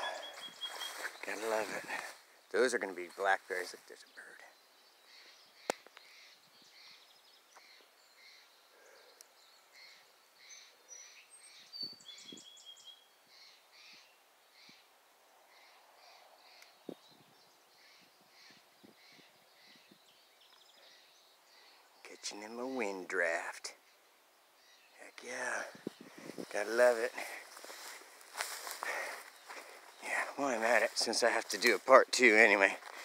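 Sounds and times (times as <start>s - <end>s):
songbird chirps: 0.0s - 33.0s.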